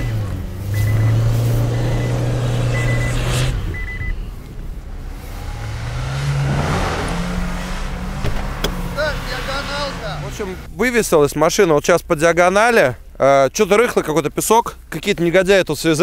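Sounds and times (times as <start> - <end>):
car engine revving: 0.0 - 10.9.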